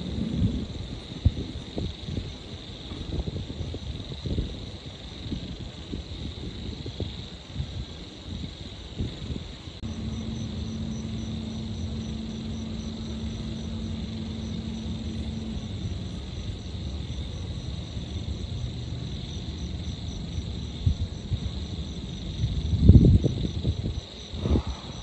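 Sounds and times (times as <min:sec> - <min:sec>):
insects trilling: 0:00.0 - 0:25.0
steady low hum: 0:07.9 - 0:25.0
faint pulsing chirp: 0:09.8 - 0:22.2
distant traffic rumble: 0:09.8 - 0:25.0.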